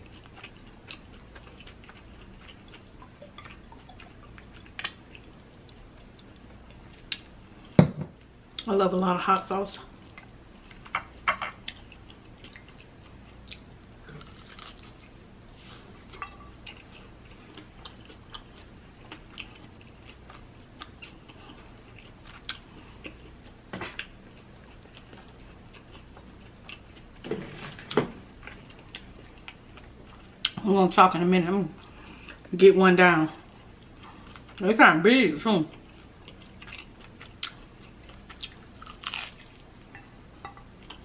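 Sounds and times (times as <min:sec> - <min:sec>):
chewing crunchy taco: 0:00.0 - 0:07.7, 0:10.1 - 0:27.2, 0:28.4 - 0:30.6, 0:35.7 - 0:40.0.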